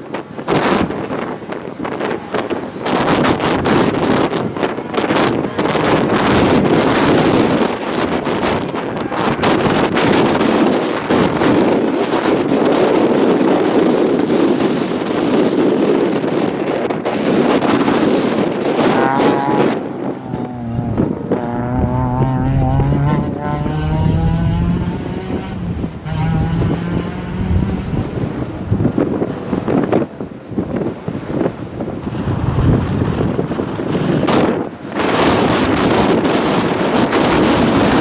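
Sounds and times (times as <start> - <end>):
wind buffeting microphone: 0.0 - 38.0
rally car engine revving: 1.9 - 16.5, 17.2 - 30.1.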